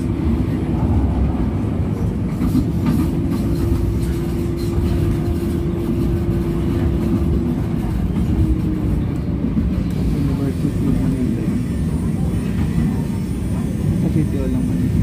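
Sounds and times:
train low rumble: 0:00.0 - 0:15.0.

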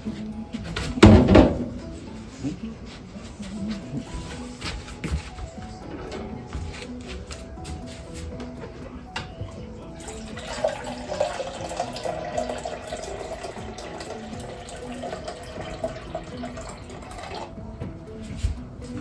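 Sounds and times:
soft background music: 0:00.0 - 0:19.0
tap water running into sink: 0:10.1 - 0:17.5.

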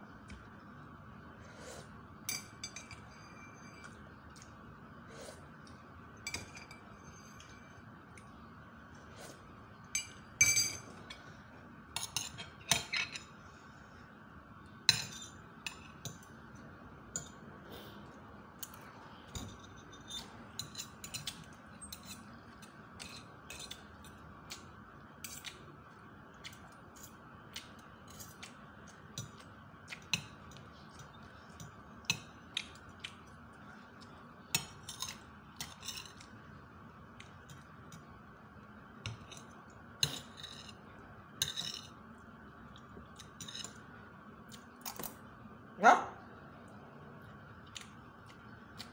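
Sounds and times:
faint steady hum: 0:00.0 - 0:48.9
cutlery clinking on a plate: 0:12.0 - 0:13.3.

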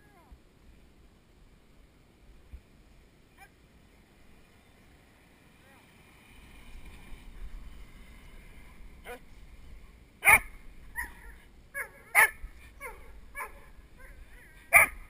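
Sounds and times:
dog barking: 0:09.0 - 0:09.2, 0:10.2 - 0:15.0.

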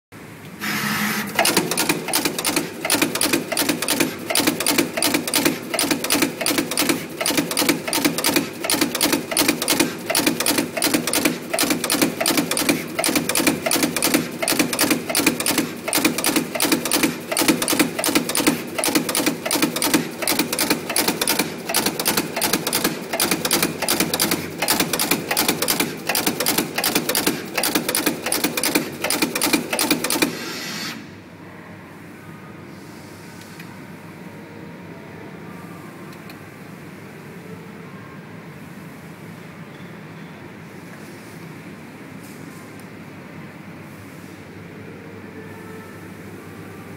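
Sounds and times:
machine hum: 0:00.2 - 0:31.2
machine clicking with thumps: 0:01.4 - 0:30.4.

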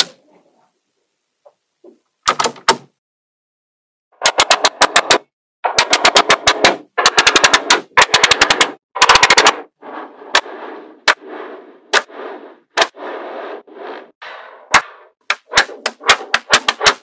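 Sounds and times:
magnetic balls snapping together: 0:14.7 - 0:17.0.

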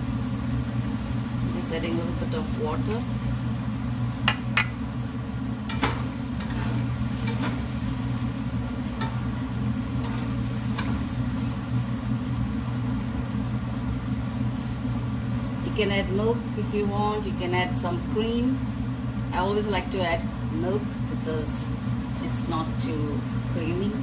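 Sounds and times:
masala sizzling in a pan: 0:00.0 - 0:24.0
steady low hum: 0:00.0 - 0:24.0
metal spatula scraping a pan: 0:05.7 - 0:07.8, 0:10.0 - 0:11.2.

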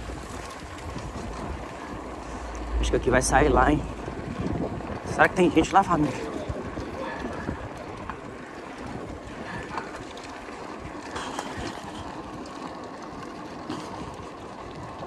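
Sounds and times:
wind buffeting microphone: 0:00.0 - 0:13.0
bicycle tyres rumbling on asphalt: 0:00.0 - 0:15.0
faint bicycle clicks: 0:05.6 - 0:14.9.

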